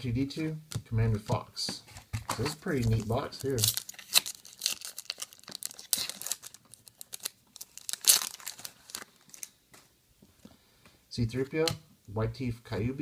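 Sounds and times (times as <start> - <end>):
foil wrapper tearing and crinkling: 2.7 - 9.5.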